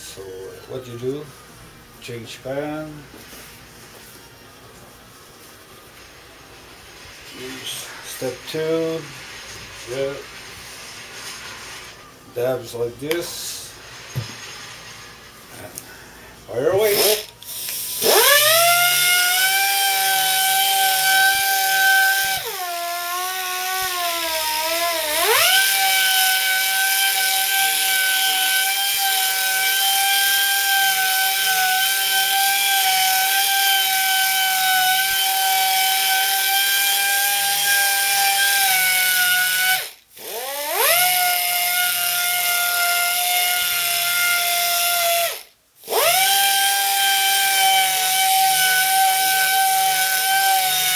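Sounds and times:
pneumatic polisher whining: 16.8 - 44.6.

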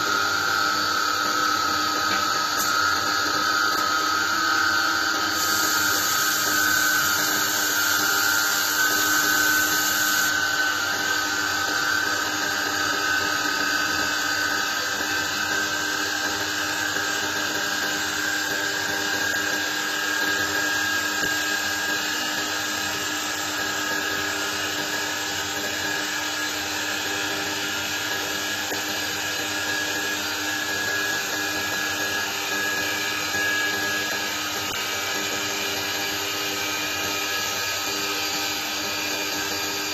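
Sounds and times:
lathe spindle whining: 0.0 - 39.9
tool cutting wood hiss: 0.0 - 39.9.

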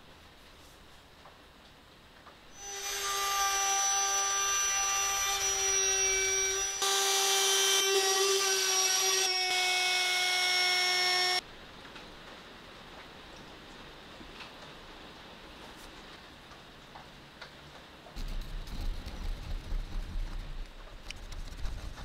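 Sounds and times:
router cutting wood: 2.6 - 11.4.

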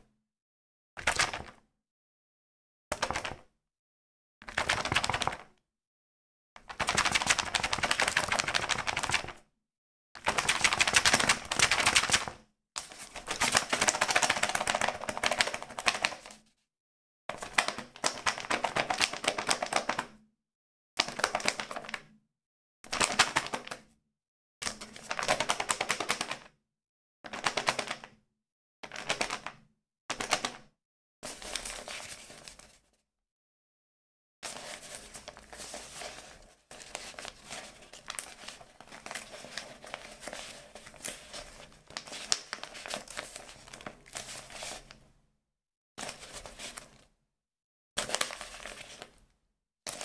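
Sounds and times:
book clicking and paper rustle: 34.5 - 45.0, 48.0 - 49.1.

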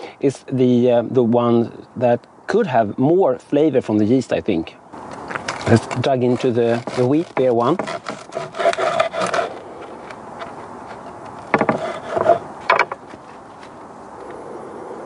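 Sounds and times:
handling noise rubbing and scraping: 5.1 - 13.8.

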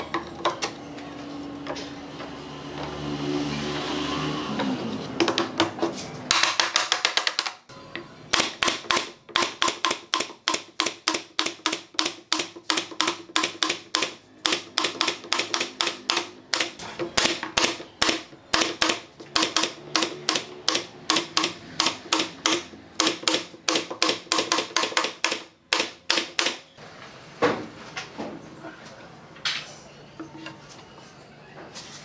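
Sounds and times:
pneumatic nailer firing nails: 8.3 - 26.6.

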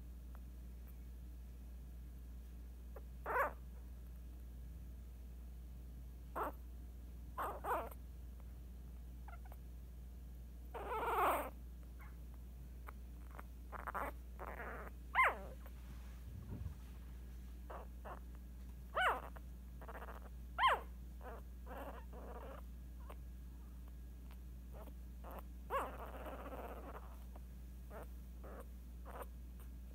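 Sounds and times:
puppy squeaking and whimpering: 3.0 - 3.6, 6.3 - 6.6, 7.4 - 8.0, 9.2 - 9.6, 10.6 - 15.7, 17.7 - 23.2, 24.2 - 29.7.

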